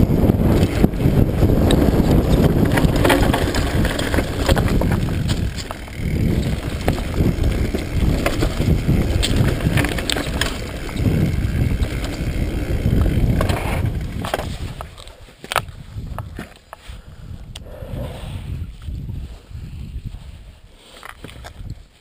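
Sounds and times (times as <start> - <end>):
bike rattling clicks: 0.0 - 16.8
wind buffeting microphone: 0.0 - 20.7
tyres crunching over gravel: 0.4 - 16.5.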